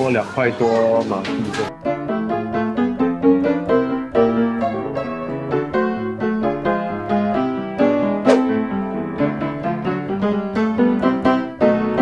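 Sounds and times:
piano melody over chords: 0.0 - 12.0
sharp click: 8.3 - 8.5.

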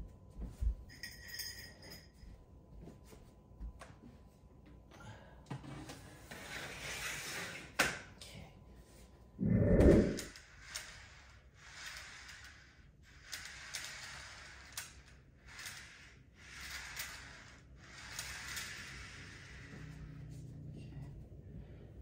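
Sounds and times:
toy train track clicking together: 10.3 - 19.6.

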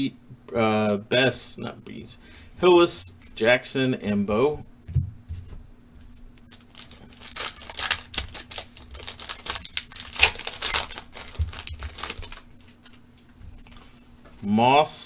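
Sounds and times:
foil pack tearing and crinkling: 6.5 - 12.5.

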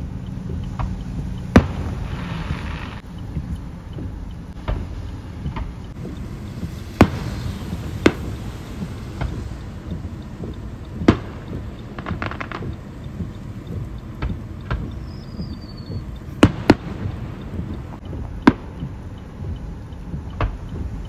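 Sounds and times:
low rumble: 0.0 - 21.0
fireworks bangs: 1.5 - 3.0, 6.1 - 9.7, 11.0 - 12.8, 15.4 - 18.8
fireworks crackles: 1.5 - 3.0, 6.0 - 13.4, 15.0 - 18.8.

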